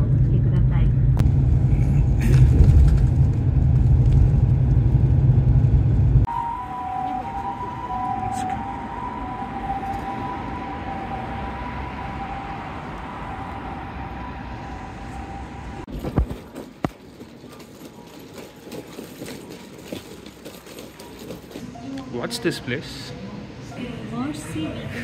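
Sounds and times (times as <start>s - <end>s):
vehicle running noise: 0.0s - 22.2s
two-note whine: 6.3s - 15.9s.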